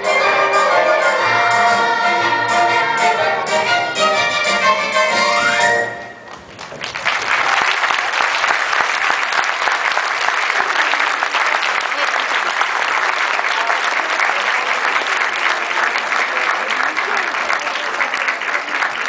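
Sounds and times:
audience applauding: 6.3 - 19.0.

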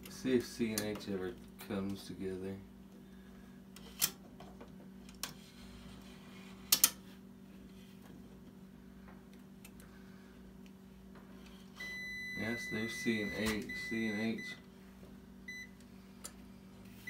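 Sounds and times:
low steady hum: 0.0 - 17.0
meter continuity beep: 11.8 - 14.6, 15.5 - 15.8.

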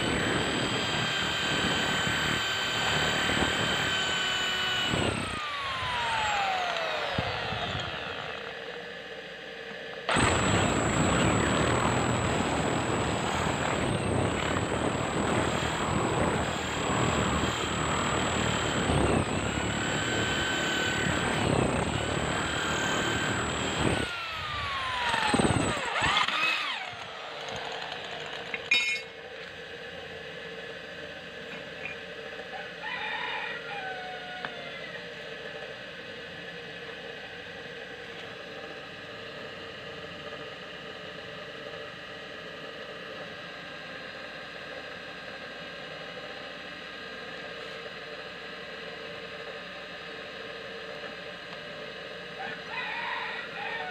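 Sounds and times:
electric drill boring steel: 0.0 - 29.1.

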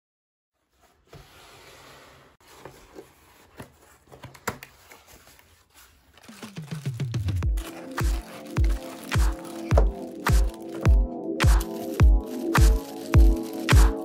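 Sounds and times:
plastic crinkling: 3.4 - 14.0.

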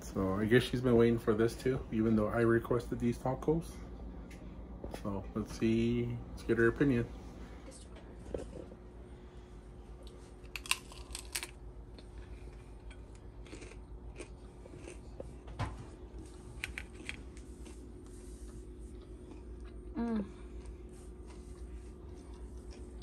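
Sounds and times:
crunching crisp taco: 10.0 - 15.5, 16.1 - 19.9.

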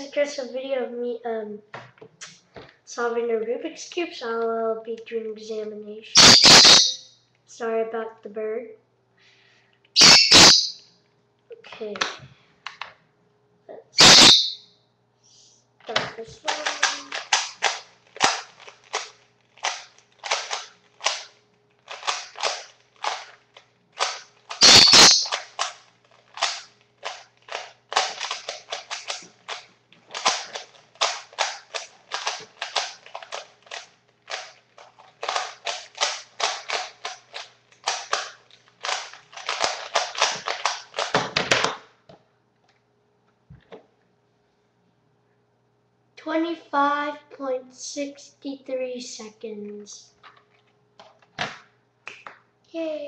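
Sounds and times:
puzzle cube clicking as turned: 16.5 - 23.4, 24.0 - 41.8.

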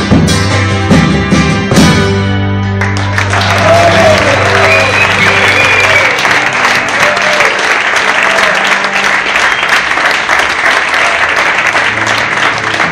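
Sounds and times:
audience applauding: 2.8 - 12.9.

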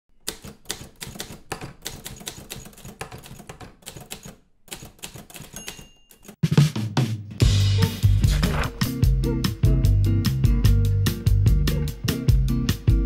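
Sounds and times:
typewriter keys clacking: 0.3 - 6.4.

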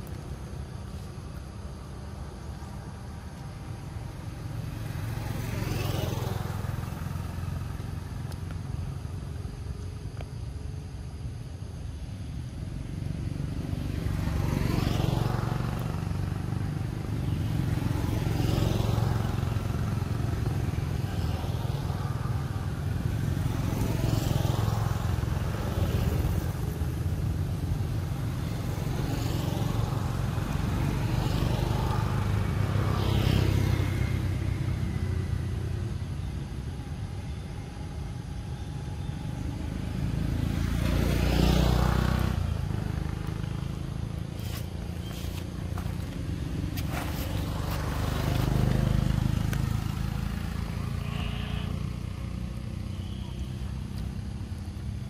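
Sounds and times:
low traffic rumble: 0.0 - 55.0
vehicles passing: 0.0 - 55.0.

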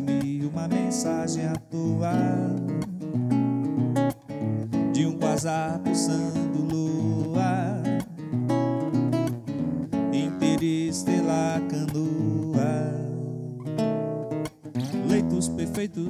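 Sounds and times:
man singing with vibrato: 0.0 - 3.2, 4.7 - 8.6, 9.9 - 13.7, 14.9 - 16.0
classical guitar strummed: 0.0 - 16.0.

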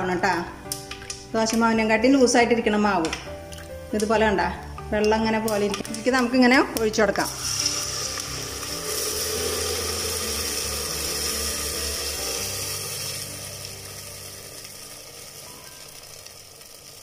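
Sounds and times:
batter sizzling in hot oil: 7.2 - 17.0.

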